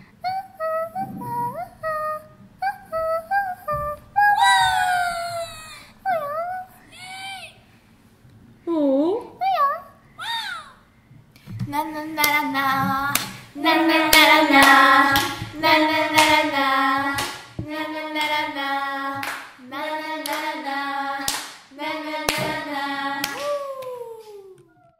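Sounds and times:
people singing steady notes: 0.7 - 5.5, 11.7 - 24.5
hand claps: 13.1 - 13.4, 14.1 - 15.6, 16.2 - 18.4, 19.2 - 19.6, 20.2 - 20.5, 21.2 - 21.7, 22.3 - 24.7.

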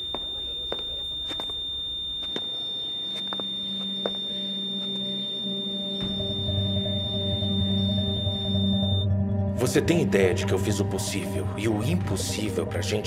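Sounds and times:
patient monitor flatline tone: 0.0 - 9.3
low sustained music: 3.8 - 13.0.

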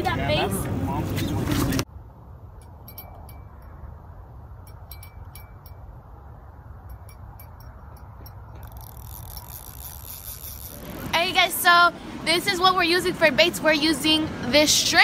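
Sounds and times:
small bell tinkling: 2.6 - 3.8, 4.6 - 6.0, 6.8 - 8.5.

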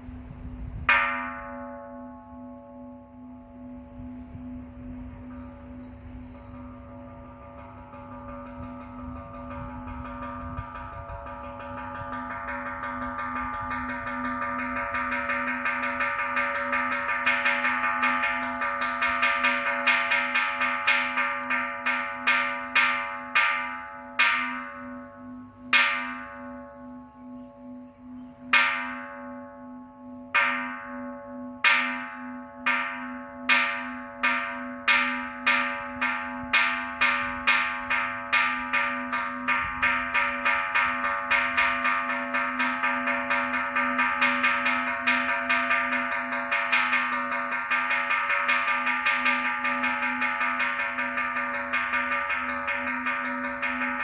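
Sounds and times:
temple bell struck with mallet: 0.8 - 54.0.

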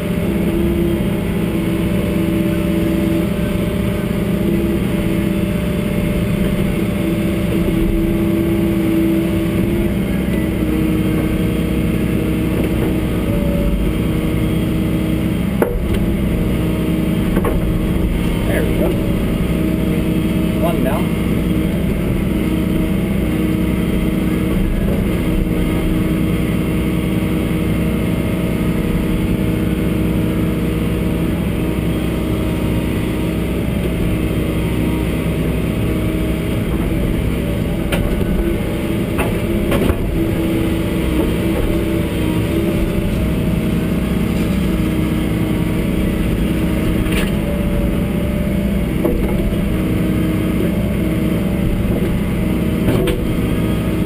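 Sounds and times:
excavator diesel engine running: 0.0 - 54.0.

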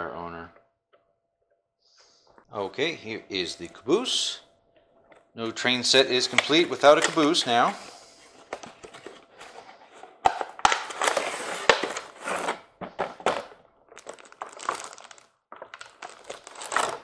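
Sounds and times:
packaging crinkling and rustling: 6.2 - 7.6, 8.4 - 17.0.

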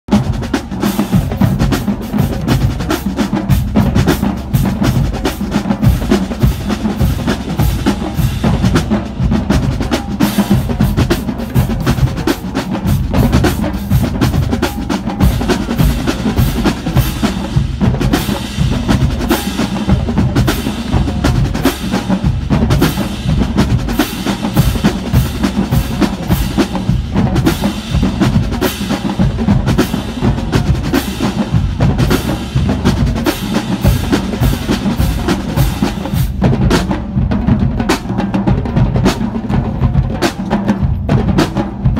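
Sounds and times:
bass drums: 0.0 - 41.9
snare drums: 0.0 - 41.9.

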